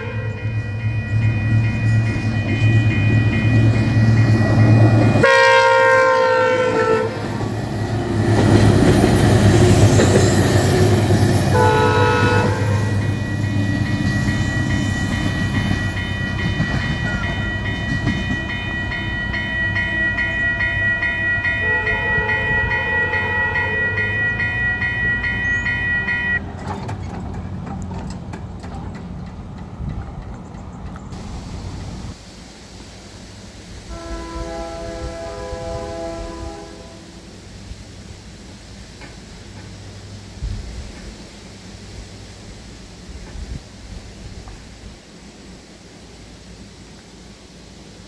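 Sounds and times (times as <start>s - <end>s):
locomotive air horn blasts: 0.0s - 0.8s, 5.2s - 7.3s, 11.5s - 13.2s, 21.6s - 26.4s, 33.9s - 37.3s
steady high ringing: 0.0s - 26.4s
train rumble: 0.0s - 48.0s.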